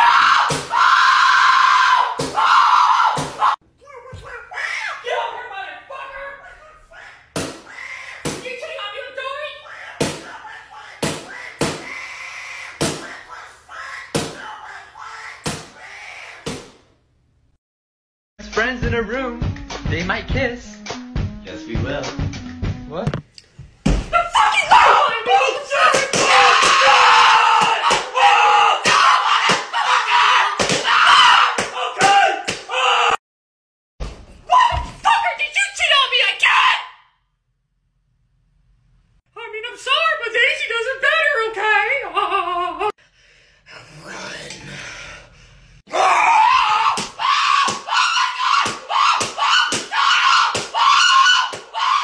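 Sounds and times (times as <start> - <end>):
person screaming: 24.4 - 33.2, 45.9 - 52.0
sharp bangs and slaps: 30.6 - 30.9, 48.6 - 50.8
person shrieking: 45.9 - 52.0.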